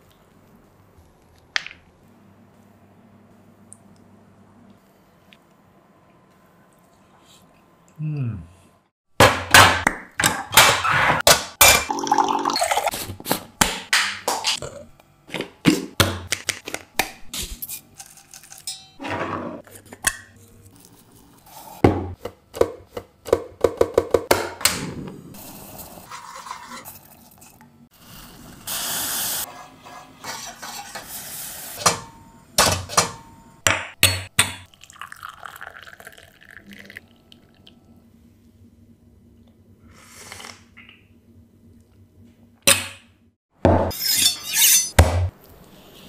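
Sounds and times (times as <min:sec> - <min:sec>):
tea pouring through strainer: 0:34.8 - 0:37.7.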